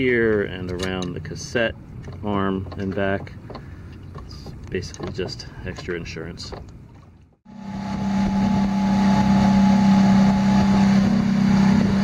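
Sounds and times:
outboard motor droning: 0.0s - 12.0s
water rushing in wake: 6.8s - 12.0s.

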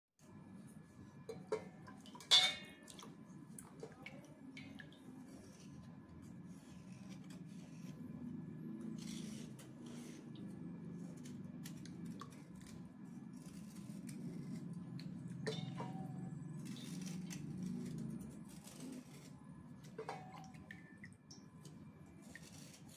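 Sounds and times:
metal clinks against bowl: 1.3s - 2.7s
knife scraping slate: 5.2s - 19.4s, 22.2s - 22.9s.

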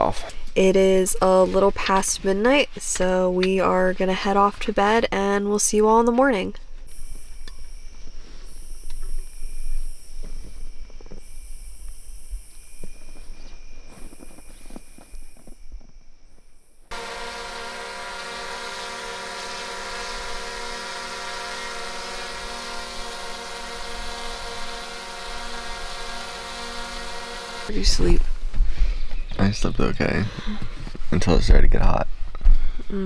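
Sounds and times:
buzzing hum of held tones: 5.2s - 28.1s
insects trilling: 6.8s - 17.5s.

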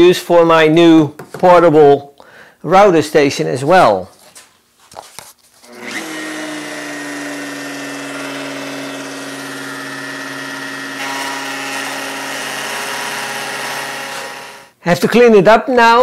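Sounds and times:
electric router whining: 5.7s - 14.8s.

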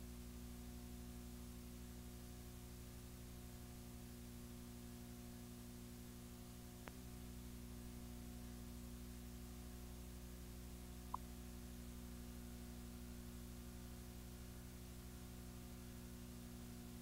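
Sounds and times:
tape playback hum and hiss: 6.7s - 7.2s, 10.8s - 15.7s.

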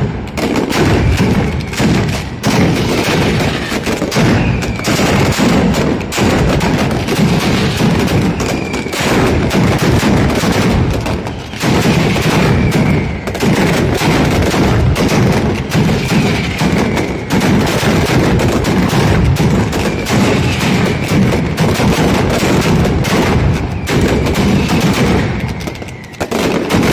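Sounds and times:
firecrackers banging: 0.0s - 26.9s
falling whistle: 8.3s - 9.0s, 12.4s - 13.4s.

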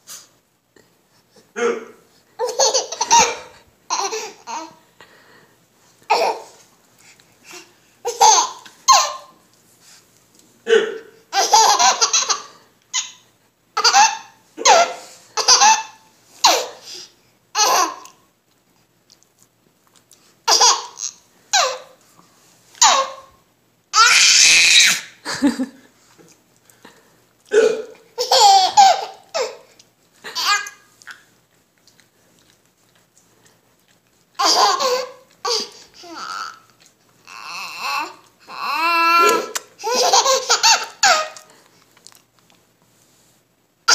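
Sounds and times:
adult hiccups: 1.6s - 2.0s, 10.7s - 11.1s, 27.5s - 28.1s, 39.2s - 39.7s
baby laughing: 2.4s - 4.8s, 7.5s - 9.3s, 11.3s - 13.2s, 13.8s - 16.8s, 17.6s - 18.2s, 20.5s - 22.0s, 22.8s - 23.3s, 28.1s - 29.7s, 30.3s - 30.8s, 34.4s - 36.7s, 37.3s - 41.5s
adult hiccupping: 27.4s - 28.1s.

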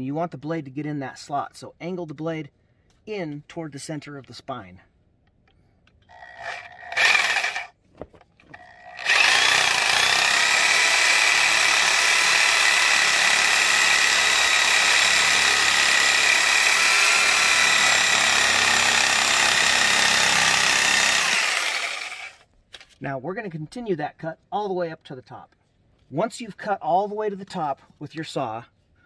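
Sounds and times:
reciprocating saw cutting bone: 8.6s - 22.4s.

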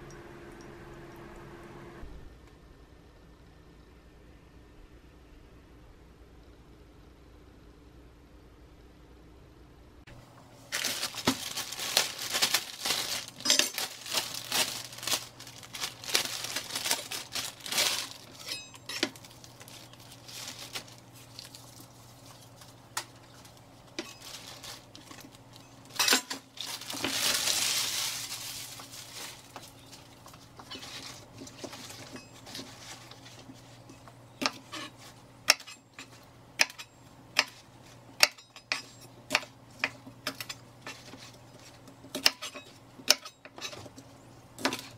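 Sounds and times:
plastic bag crinkling: 10.6s - 33.9s.

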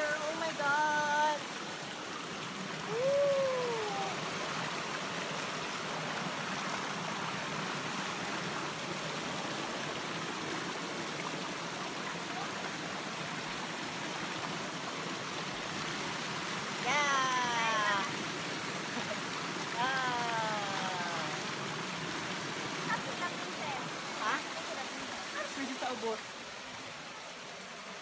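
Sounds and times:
short vocal cry: 2.9s - 4.2s.

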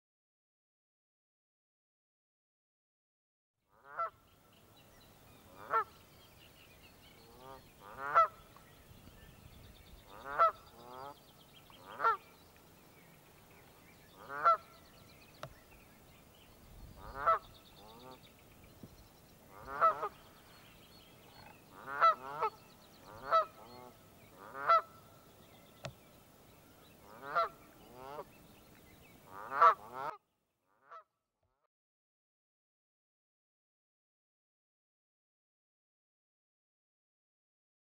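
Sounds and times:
geese honking: 3.8s - 4.2s, 5.5s - 6.0s, 7.3s - 8.4s, 10.1s - 12.2s, 14.2s - 14.8s, 17.0s - 18.2s, 19.5s - 20.3s, 21.4s - 25.1s, 27.0s - 28.3s, 29.3s - 30.2s.

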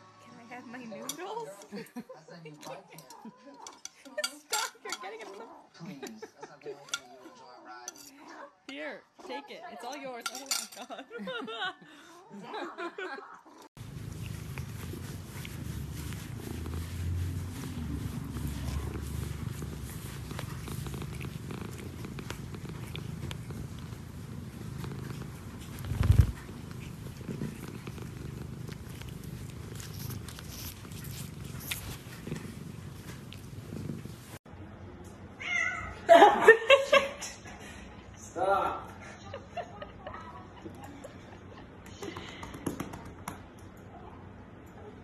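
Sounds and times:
cat purring: 13.4s - 34.4s.

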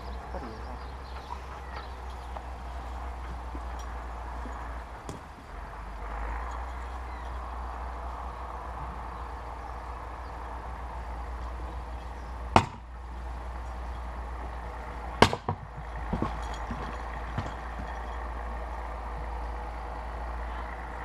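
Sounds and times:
maul striking firewood: 4.9s - 5.6s, 12.5s - 12.9s, 15.2s - 17.9s.

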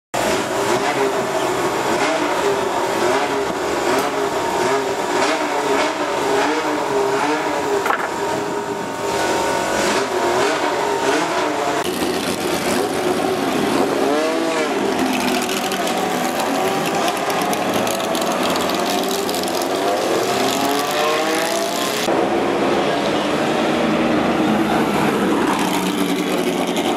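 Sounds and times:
racing engine idling: 0.2s - 20.9s
engine revving: 0.2s - 26.9s
racing cars driving past: 8.6s - 26.9s.

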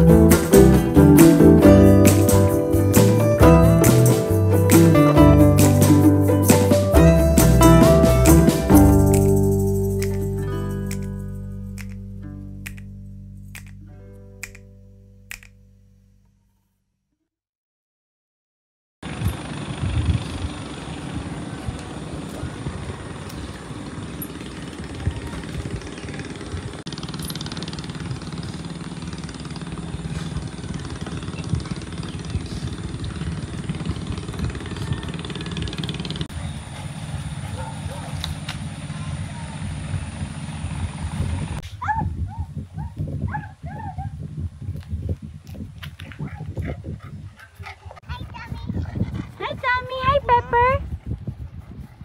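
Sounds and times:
wind buffeting microphone: 19.0s - 52.0s
dog yipping: 37.4s - 38.3s, 41.8s - 44.2s.

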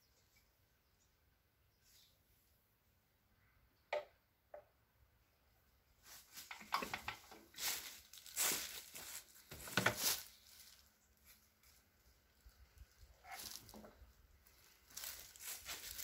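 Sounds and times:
footsteps crunching dry leaves: 7.4s - 16.0s.

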